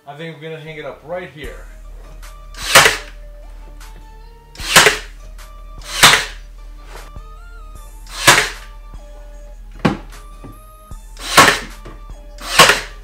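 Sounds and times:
background music with guitar notes: 0:00.7 - 0:13.0
loud sharp fastening shots: 0:02.6 - 0:03.2, 0:04.6 - 0:05.2, 0:05.8 - 0:06.4, 0:08.1 - 0:08.7, 0:11.2 - 0:11.7, 0:12.4 - 0:13.0.

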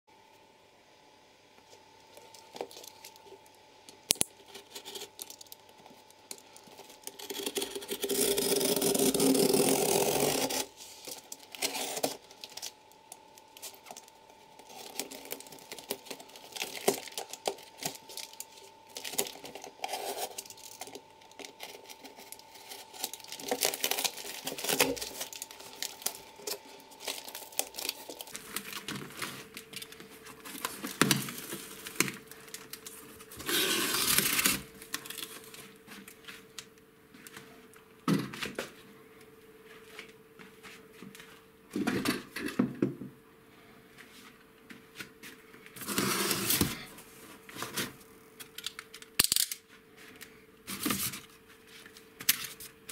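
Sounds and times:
packing tape and cardboard tearing: 0:04.0 - 0:36.1, 0:45.8 - 0:46.9, 0:50.7 - 0:51.3
clicks and rustles of handling: 0:11.0 - 0:33.5.

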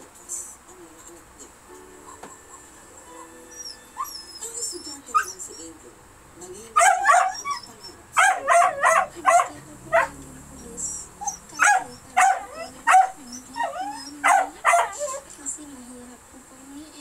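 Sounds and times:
small animal crying: 0:03.5 - 0:04.6.

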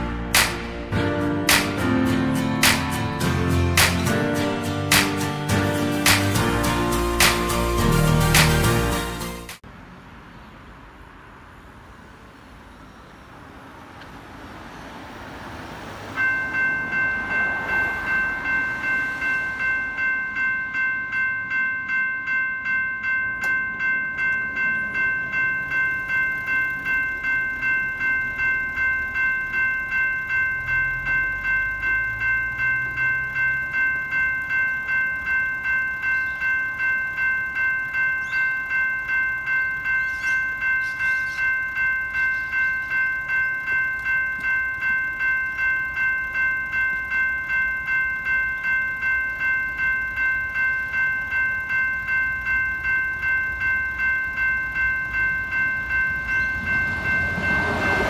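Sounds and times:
car passing: 0:09.7 - 0:21.4, 0:55.1 - 0:58.0
level crossing bell dinging: 0:15.7 - 0:58.0.

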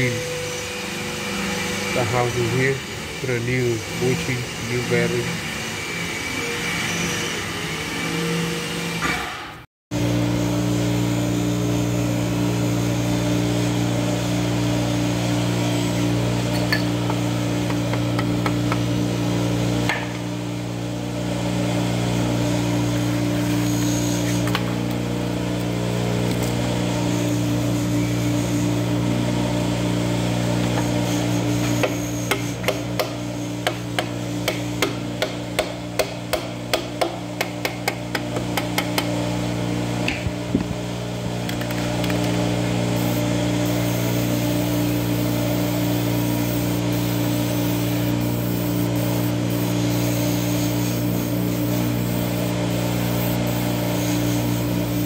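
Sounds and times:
metal lathe humming: 0:00.0 - 0:09.0, 0:10.0 - 0:41.1, 0:41.9 - 0:55.0.

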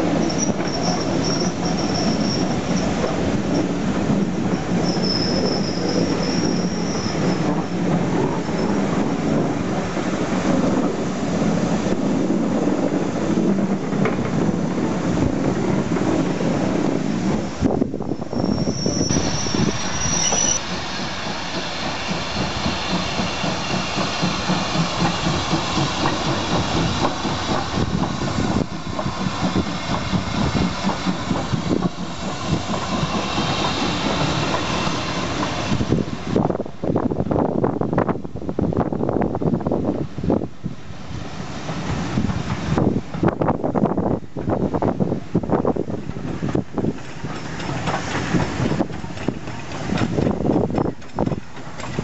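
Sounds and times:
wheels squealing and clicking: 0:00.0 - 0:03.8, 0:04.4 - 0:09.0, 0:18.2 - 0:27.8, 0:46.2 - 0:52.0
steam locomotive pulling away: 0:00.0 - 0:37.0, 0:40.2 - 0:52.0
train coaches rolling past: 0:00.0 - 0:52.0.

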